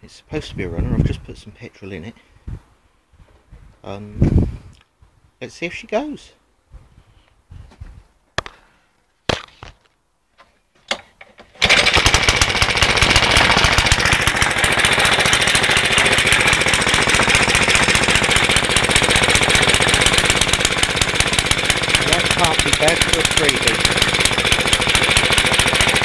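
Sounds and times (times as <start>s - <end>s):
lawnmower engine cranking: 11.2s - 26.0s
lawnmower engine running: 11.4s - 26.0s.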